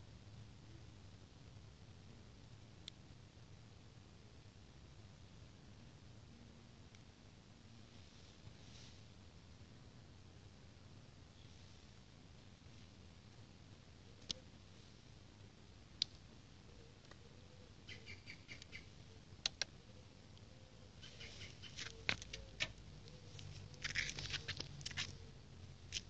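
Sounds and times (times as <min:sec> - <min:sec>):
crackling rustle: 0:07.7 - 0:09.6, 0:17.9 - 0:26.0.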